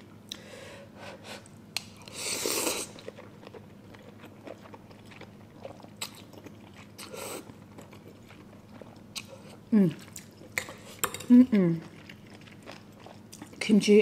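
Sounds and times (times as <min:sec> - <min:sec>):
person slurping noodles: 0:02.1 - 0:03.0.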